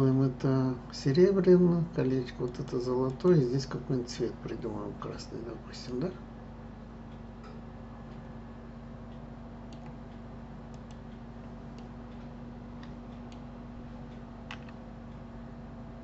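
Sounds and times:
low electrical hum: 0.0s - 16.0s
computer mouse clicks: 9.7s - 10.0s, 10.7s - 11.0s, 14.5s - 14.8s.

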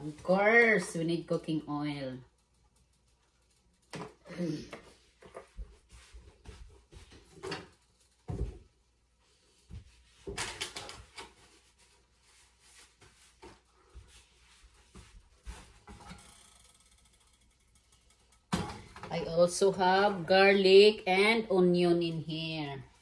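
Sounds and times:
kitchen knocks and clatters: 6.5s - 8.7s, 9.7s - 11.4s, 15.0s - 19.3s.

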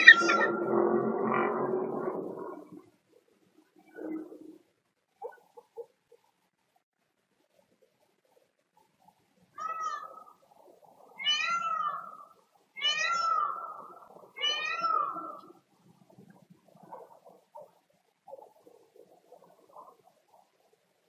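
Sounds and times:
animal calling: 0.0s - 1.0s.

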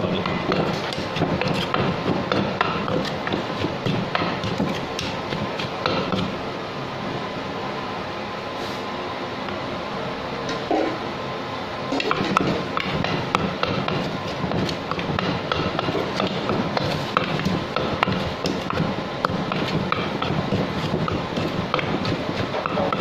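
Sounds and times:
wooden pestle pounding in mortar: 0.0s - 6.4s, 12.0s - 23.0s.

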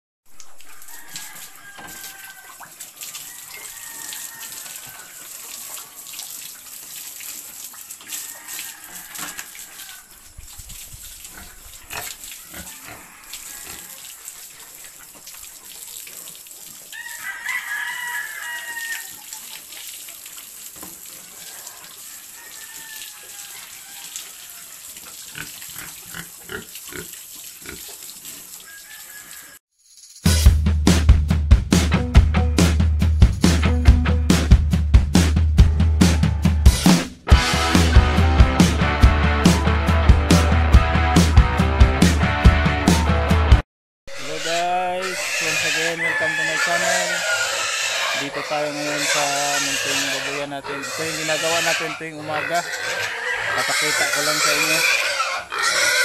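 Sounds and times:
hose water spraying: 0.3s - 29.6s
pigs grunting and squealing: 11.3s - 15.8s, 22.7s - 28.0s, 44.1s - 56.0s
loud animal call: 44.1s - 56.0s.

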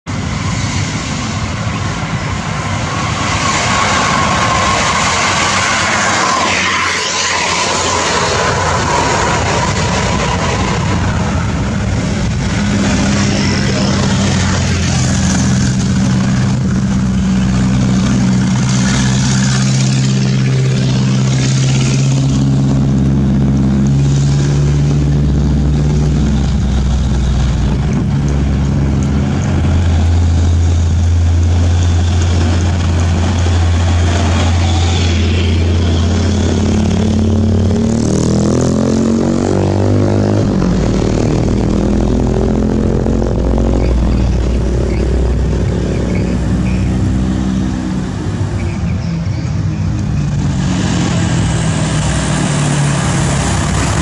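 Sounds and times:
diesel truck engine labouring: 0.0s - 54.0s
motorcycle engine: 0.0s - 54.0s
another truck engine: 0.1s - 54.0s.

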